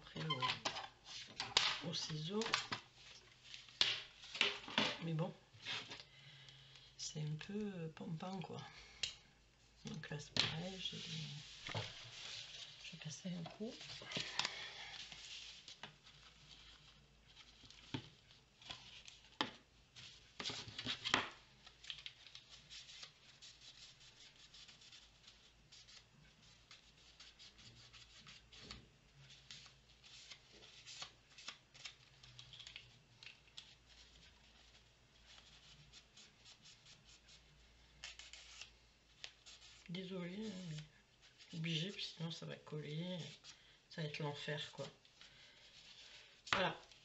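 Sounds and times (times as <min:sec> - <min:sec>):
paper rustling: 0:00.1 - 0:06.1, 0:10.4 - 0:42.0.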